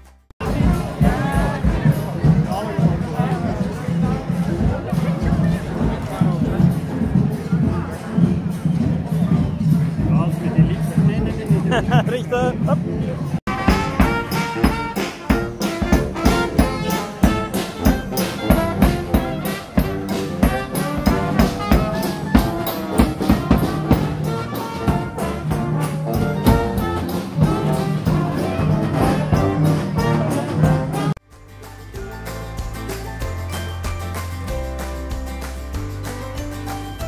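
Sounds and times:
steady drum beat: 0.4s - 37.0s
brass band music: 13.3s - 33.6s.

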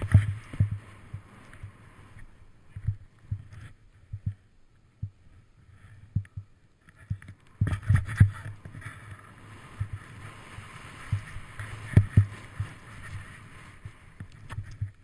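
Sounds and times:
snowboard hissing on snow: 9.4s - 14.2s.

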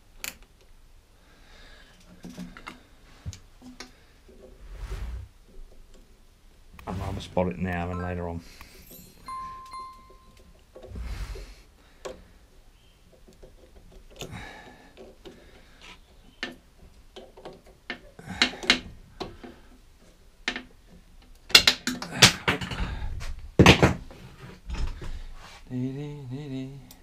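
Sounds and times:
pliers and metal parts rattling: 8.6s - 10.9s.

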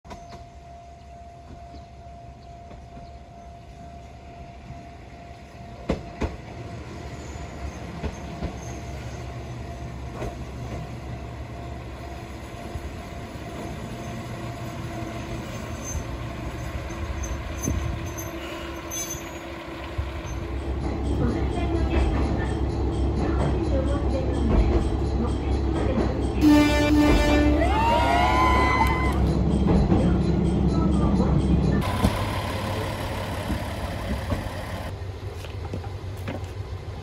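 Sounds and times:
diesel railcar engine and wheel rumble: 0.1s - 37.0s.

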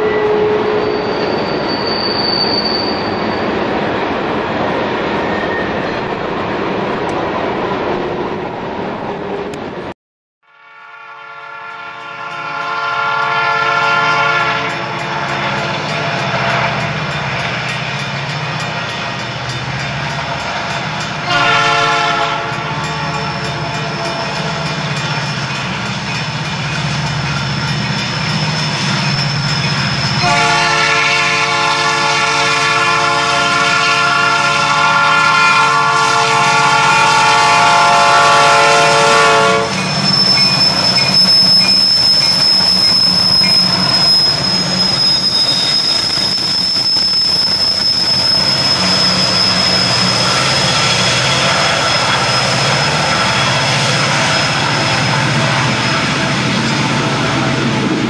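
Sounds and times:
locomotive horn blast: 0.0s - 1.0s, 10.5s - 16.8s, 21.2s - 24.7s, 30.2s - 39.8s
diesel locomotives roaring: 10.6s - 58.0s
freight cars rumbling: 39.0s - 58.0s.

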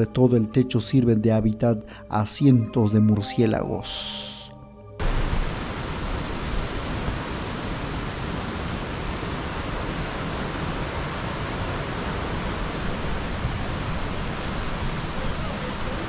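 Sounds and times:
river water rushing: 5.0s - 16.0s.

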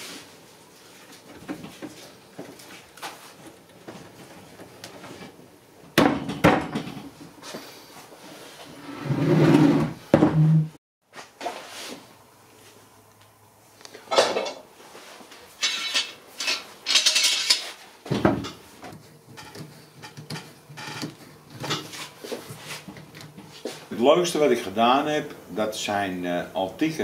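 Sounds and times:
wooden chair knocks and scrapes: 8.9s - 10.8s.

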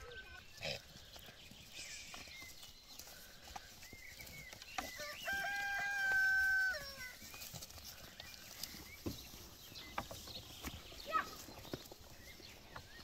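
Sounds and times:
rooster crowing: 5.0s - 7.2s.

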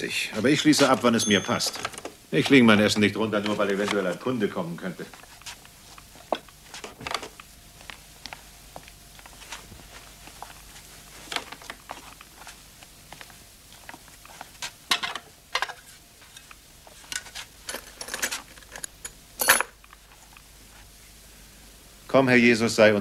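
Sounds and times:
crockery and cutlery clinking: 0.8s - 3.6s.

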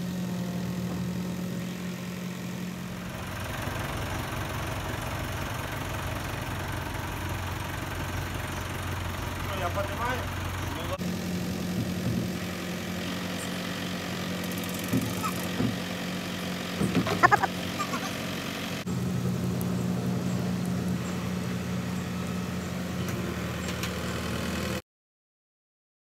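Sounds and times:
diesel engine idling: 0.0s - 24.8s
high-pitched squeaks: 17.2s - 18.2s.

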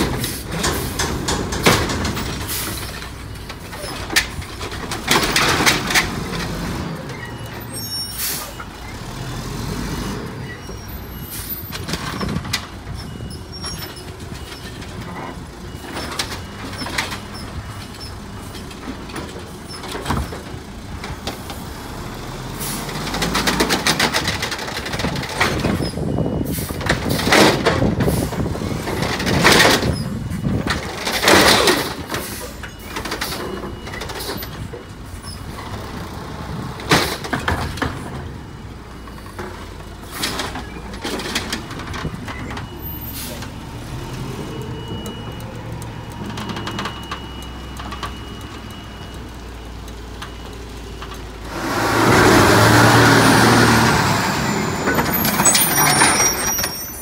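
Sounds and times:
garbage carts and arm clanking: 0.0s - 57.0s
diesel engine running: 31.8s - 56.1s.

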